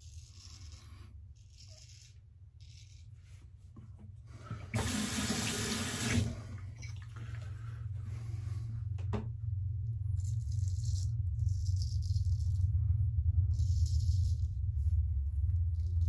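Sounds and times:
razor scraping stubble: 0:00.0 - 0:03.5.

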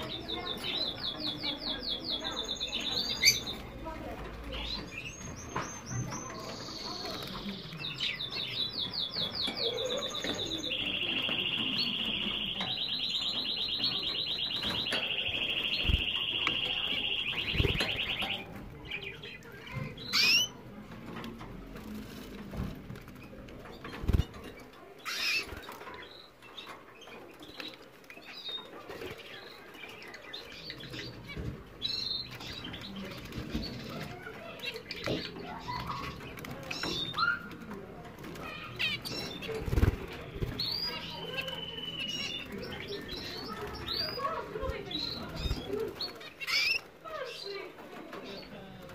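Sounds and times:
canary singing trills: 0:00.0 - 0:20.7, 0:23.6 - 0:48.9
wings fluttering: 0:38.2 - 0:41.6.

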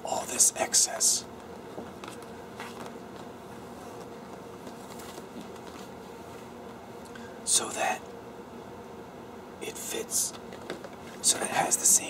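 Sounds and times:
background hiss: 0:00.0 - 0:12.0
posterboard rustling and sliding: 0:01.8 - 0:06.5.

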